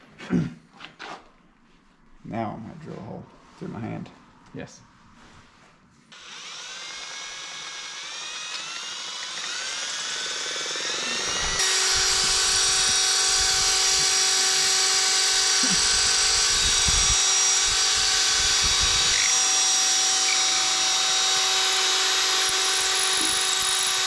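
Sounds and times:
electric drill whine: 6.1 - 24.0.

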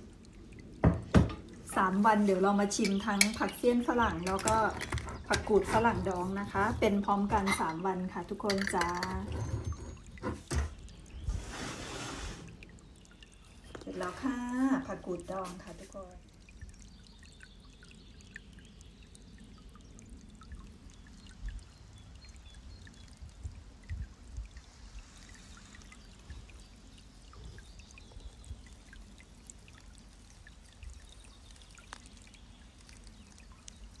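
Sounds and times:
wind buffeting the microphone: 22.7 - 24.6.

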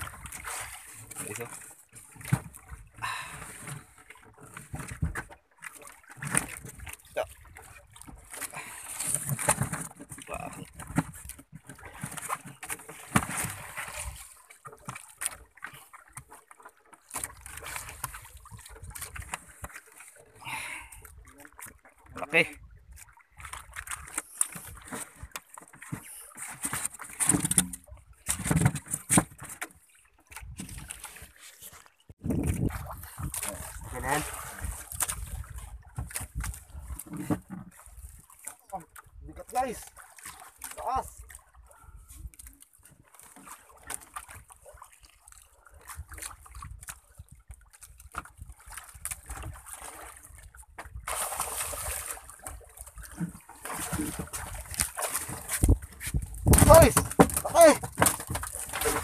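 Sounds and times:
water splashing against boat: 0.0 - 59.0
wind rumble on microphone: 32.2 - 36.9, 55.5 - 57.1.

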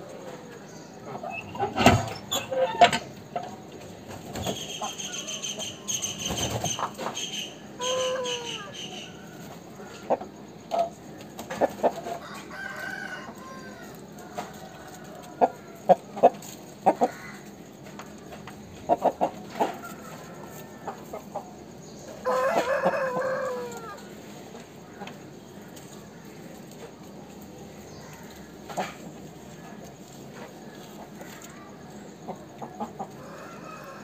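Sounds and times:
roosters clucking: 0.0 - 34.0
rooster crowing: 7.8 - 10.1, 12.2 - 15.8, 22.2 - 24.1, 33.2 - 34.0.

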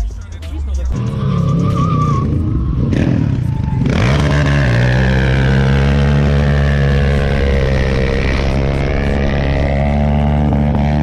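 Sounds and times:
quad bike engine revving: 0.9 - 11.0.

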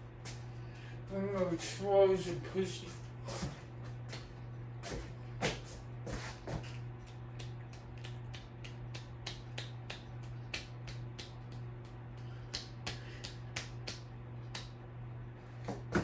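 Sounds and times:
ceiling fan motor hum: 0.0 - 16.0
fan sharp clicking: 6.6 - 15.0.

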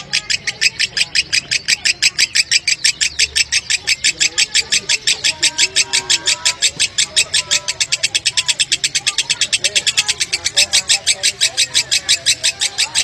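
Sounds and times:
lovebird chattering calls: 0.0 - 13.0.

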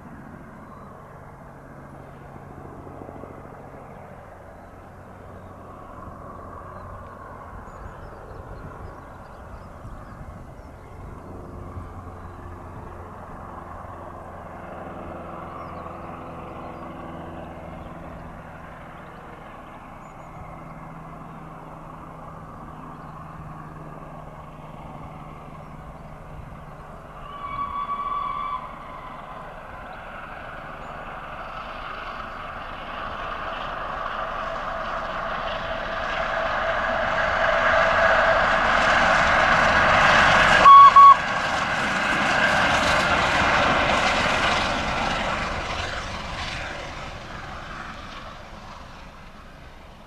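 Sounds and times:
steam train passing: 34.0 - 50.0
steam whistle toots: 40.6 - 41.3.

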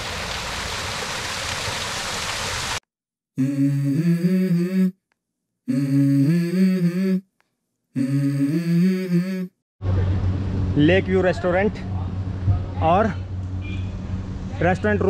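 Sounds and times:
water splashing over rocks: 0.0 - 2.8
person humming melody: 3.4 - 5.0, 5.7 - 7.3, 7.9 - 9.6.

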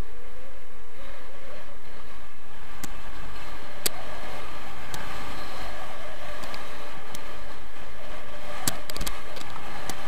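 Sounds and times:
skis sliding over snow: 0.0 - 10.0
faint clicks: 8.6 - 10.0.

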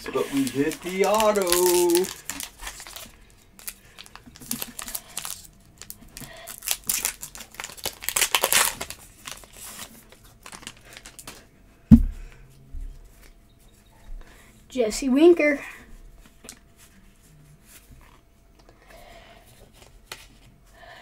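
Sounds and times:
plastic wrapper crinkling and tearing: 0.2 - 11.4
sharp thump: 11.9 - 12.2.

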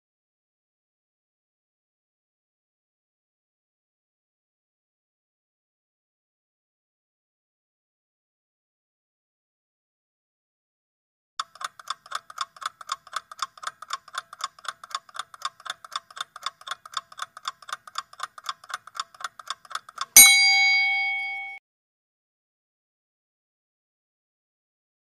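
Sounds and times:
clock ticking: 11.4 - 21.6
loud bell ding: 20.2 - 21.6.

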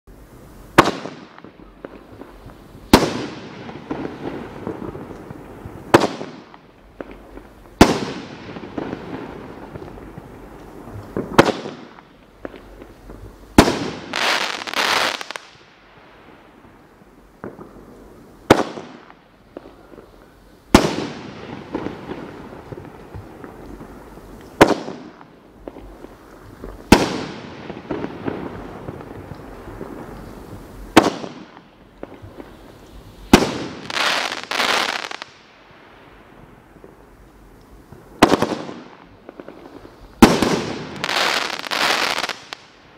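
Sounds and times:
firework hiss: 0.1 - 42.9
firework pops and crackle: 0.7 - 16.1, 16.7 - 35.5, 36.8 - 42.9
firework bangs: 0.7 - 35.5, 37.9 - 42.9.

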